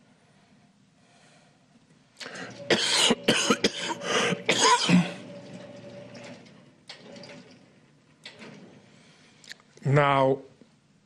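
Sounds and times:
person coughing: 2.6 - 5.2.

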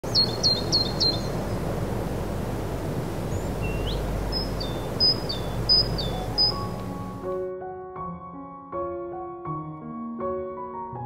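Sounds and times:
small bird chirping: 0.0 - 7.2
steady background hiss: 0.0 - 7.3.

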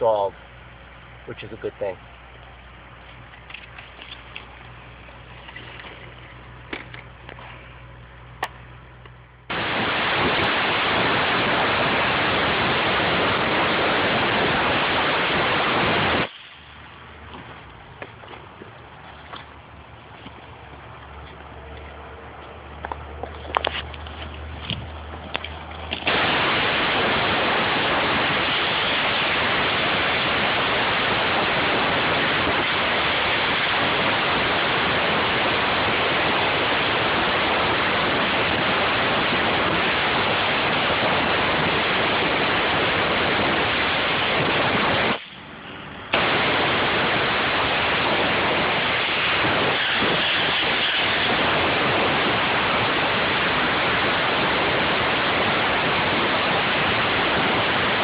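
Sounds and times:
air spade blasting air hiss: 9.5 - 16.8, 26.0 - 36.6, 46.1 - 56.6.

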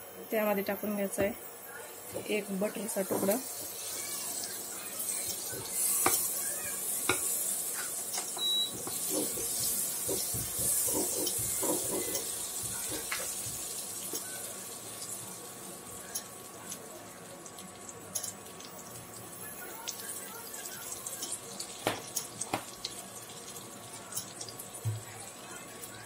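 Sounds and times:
butter sizzling in a frying pan: 1.9 - 26.0
wooden spatula scraping a pan: 8.8 - 13.2.

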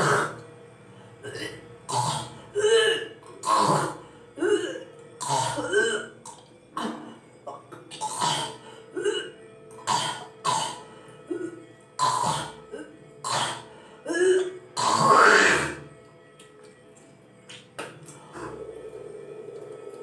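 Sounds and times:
woman spitting: 0.0 - 0.4, 1.2 - 15.9.

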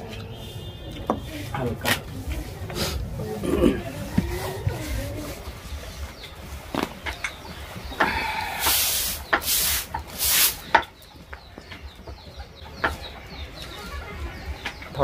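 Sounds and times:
chicken calling: 7.6 - 10.7.

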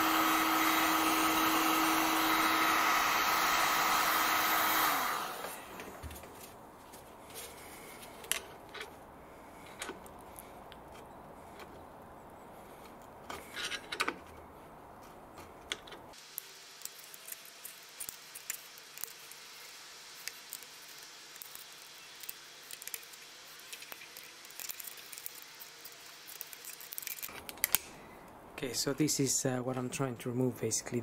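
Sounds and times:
heat gun blowing: 0.0 - 6.1.

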